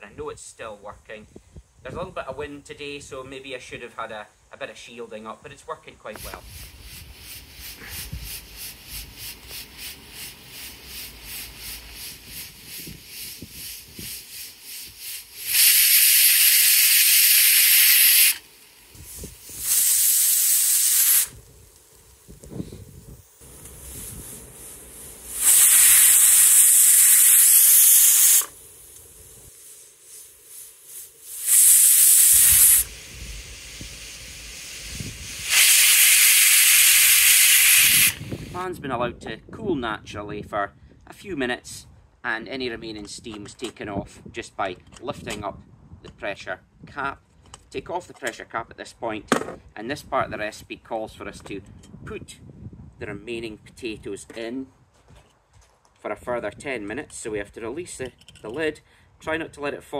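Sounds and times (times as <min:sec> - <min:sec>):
pressure cooker soft pulsing hiss: 0:06.2 - 0:38.6
pressure cooker steam whistle: 0:14.8 - 0:18.4, 0:19.6 - 0:21.3, 0:25.3 - 0:28.6, 0:31.2 - 0:38.6.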